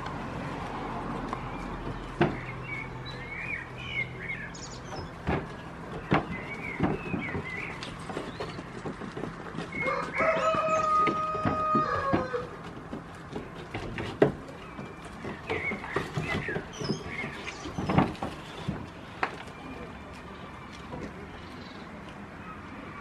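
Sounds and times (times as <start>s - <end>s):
small birds chirping: 1.4s - 10.9s, 14.4s - 18.7s, 19.4s - 23.0s
goats knocking heads: 4.9s - 19.4s
rooster crowing: 9.8s - 12.5s.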